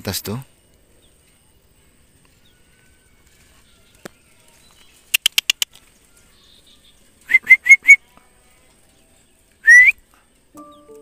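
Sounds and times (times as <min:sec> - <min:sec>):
sharp ticks: 0:05.1 - 0:05.8
person whistling rising notes: 0:07.3 - 0:08.0, 0:09.6 - 0:10.0.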